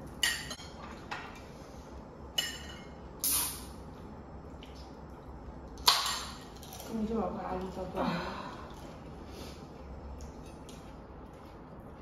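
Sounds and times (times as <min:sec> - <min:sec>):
tableware clinking: 0:00.2 - 0:01.4, 0:02.4 - 0:03.0.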